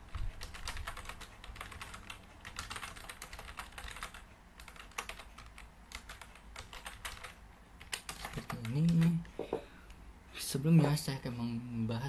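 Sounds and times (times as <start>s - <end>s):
typing on computer keyboard: 0.1s - 9.2s.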